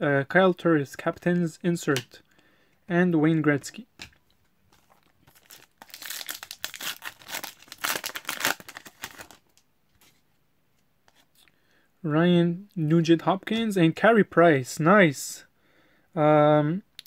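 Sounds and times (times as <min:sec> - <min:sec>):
foil wrapper tearing and crinkling: 0:04.8 - 0:09.5.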